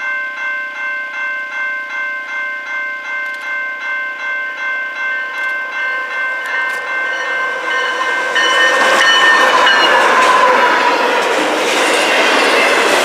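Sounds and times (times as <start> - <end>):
train bell ringing: 0.0 - 13.0
train wheels on rails: 4.9 - 13.0.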